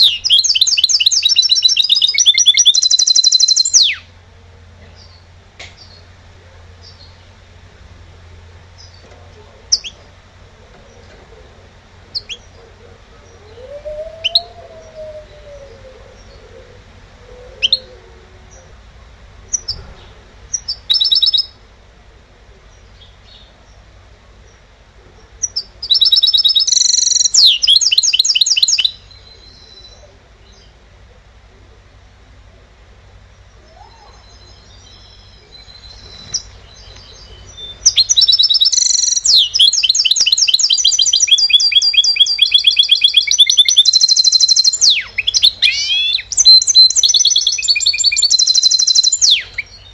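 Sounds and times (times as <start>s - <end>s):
buzzy bird trill: 0.0s - 4.1s, 25.4s - 30.0s, 33.6s - 49.9s
fast bird song: 0.0s - 4.1s, 8.7s - 10.1s, 12.1s - 16.6s, 19.5s - 21.6s, 22.6s - 30.8s, 33.2s - 49.9s
bird call notes: 33.6s - 49.9s.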